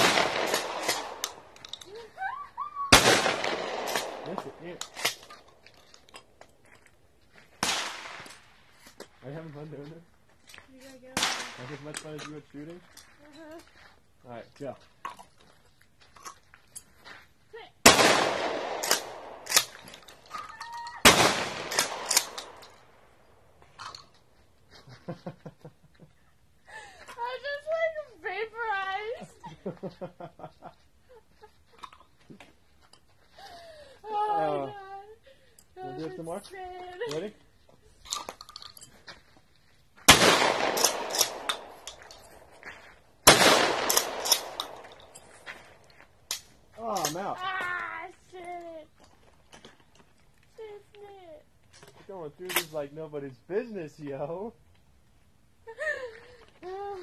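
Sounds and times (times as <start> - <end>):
shotgun bang with echo: 0.0 - 1.2, 3.0 - 5.0, 17.9 - 19.5, 21.0 - 22.6, 40.1 - 41.7, 43.3 - 44.6.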